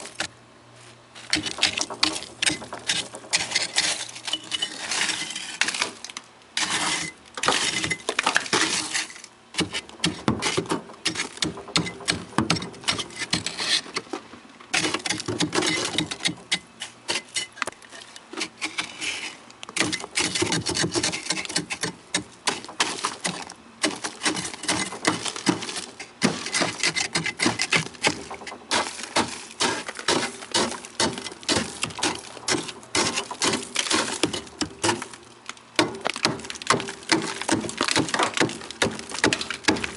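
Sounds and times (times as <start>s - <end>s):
chisel chipping ice: 1.3s - 14.1s, 14.7s - 17.7s, 18.4s - 35.2s, 35.8s - 39.9s.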